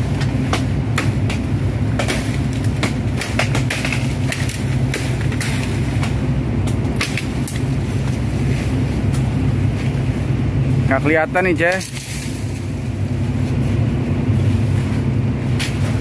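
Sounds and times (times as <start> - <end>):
low machine hum: 0.0 - 16.0
leaves and twigs crackling: 1.1 - 10.3, 11.0 - 16.0.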